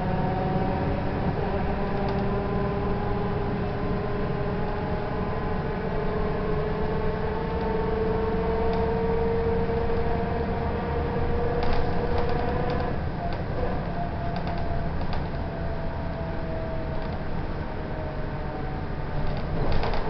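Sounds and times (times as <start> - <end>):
bus engine drone from inside: 0.0 - 20.0
rising drivetrain whine: 0.0 - 20.0.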